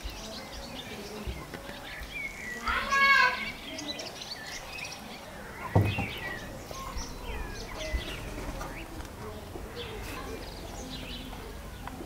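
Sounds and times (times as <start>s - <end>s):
birds chirping: 0.0s - 12.0s
low thump: 5.6s - 6.6s.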